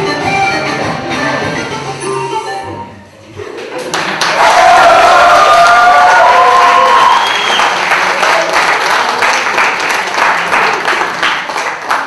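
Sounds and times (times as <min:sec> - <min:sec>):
rhythmic clapping: 0:03.6 - 0:04.4, 0:07.3 - 0:12.0
audience applauding and cheering: 0:03.9 - 0:12.0.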